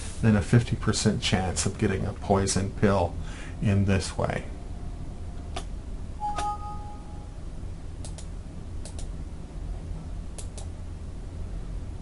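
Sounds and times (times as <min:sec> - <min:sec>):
steady low hum: 0:00.0 - 0:12.0
two-tone alert chime: 0:06.2 - 0:07.2
computer mouse clicks: 0:08.0 - 0:09.1, 0:10.4 - 0:10.7.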